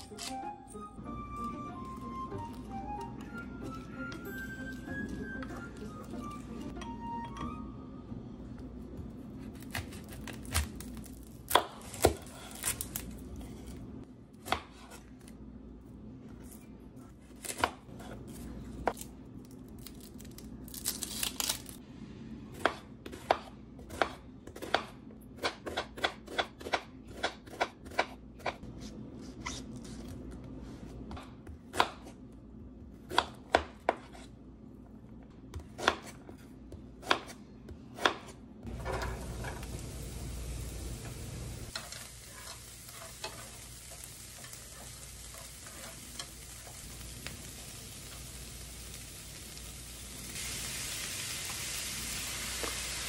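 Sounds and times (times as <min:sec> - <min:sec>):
knife chopping on cutting board: 0:22.6 - 0:28.6, 0:31.1 - 0:32.2, 0:33.1 - 0:34.3, 0:35.5 - 0:38.4.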